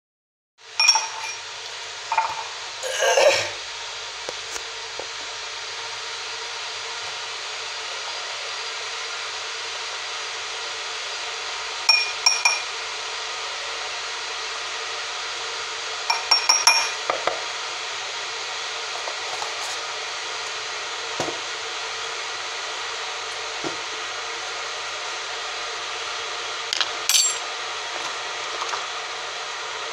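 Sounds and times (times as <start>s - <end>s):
spoon clinking glass tumbler: 0.8s - 1.5s, 2.1s - 3.4s, 11.9s - 12.7s, 16.1s - 17.0s, 27.1s - 27.4s.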